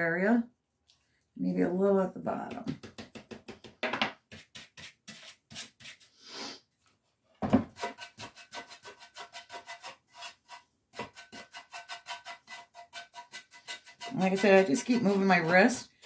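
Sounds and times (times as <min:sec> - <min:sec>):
knock: 0:02.5 - 0:04.2, 0:07.4 - 0:07.8
wax brush scrubbing: 0:04.3 - 0:06.5, 0:07.8 - 0:16.0.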